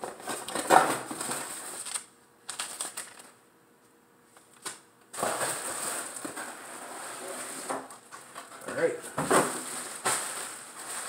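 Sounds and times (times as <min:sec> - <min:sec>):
packaging rustling and crinkling: 0:00.0 - 0:03.4, 0:05.2 - 0:11.0.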